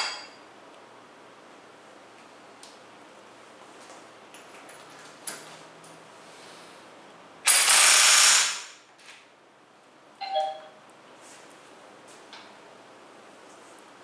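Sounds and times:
impact wrench running: 0:07.4 - 0:08.8
short electronic beep: 0:10.2 - 0:10.8.

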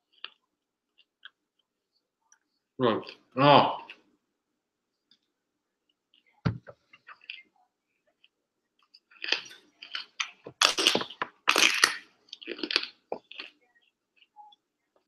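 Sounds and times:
broccoli crunching while chewed: 0:09.0 - 0:13.6.

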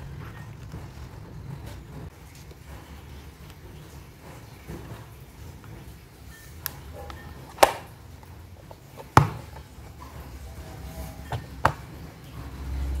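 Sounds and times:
plastic box clicks and knocks: 0:07.5 - 0:07.9, 0:08.8 - 0:09.7.

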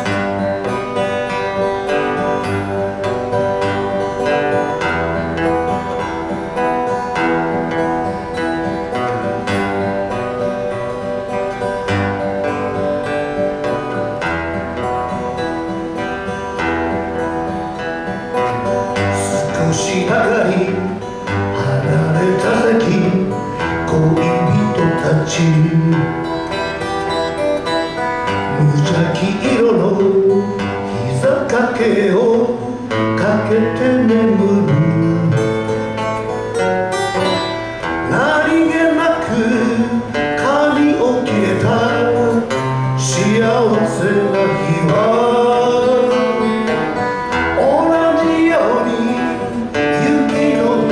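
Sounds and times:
acoustic guitars strummed: 0:00.0 - 0:50.9
person singing: 0:17.5 - 0:27.0, 0:27.6 - 0:36.0, 0:37.2 - 0:50.9.

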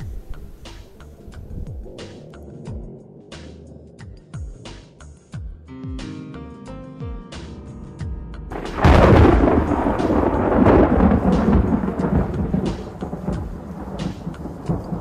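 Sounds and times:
thunderclap rumbling: 0:00.0 - 0:04.9, 0:08.5 - 0:15.0
background music with drum hits: 0:00.0 - 0:15.0.

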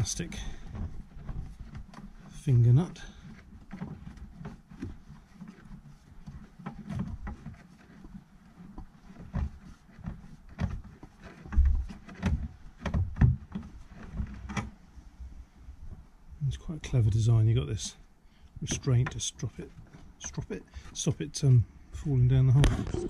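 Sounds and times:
dull thumps: 0:00.0 - 0:16.1.

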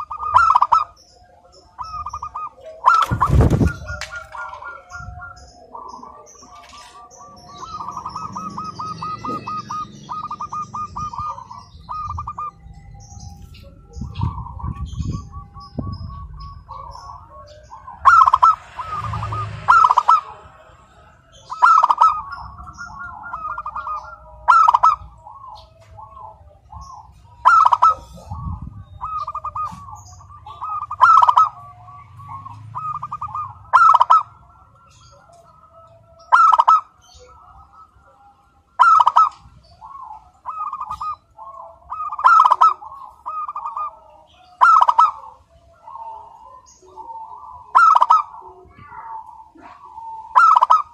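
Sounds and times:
doves cooing: 0:00.0 - 0:50.9
loud sharp bird call: 0:01.8 - 0:12.6, 0:21.4 - 0:34.4.

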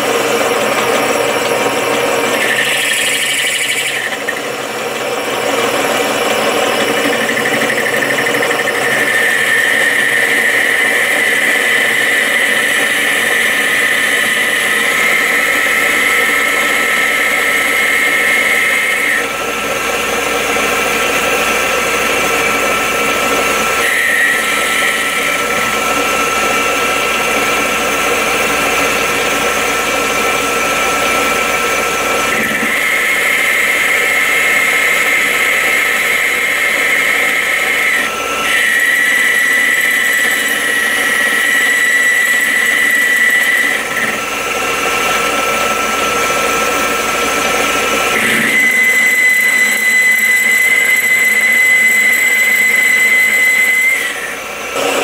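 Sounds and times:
metal lathe whirring: 0:00.0 - 0:55.0
thin high whistle: 0:48.2 - 0:54.4.

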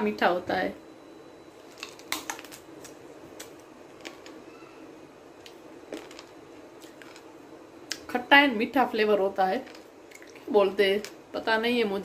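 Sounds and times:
low room hum: 0:00.0 - 0:12.0
crisp chewing crunches: 0:01.6 - 0:04.4, 0:05.9 - 0:07.3, 0:09.6 - 0:10.5.

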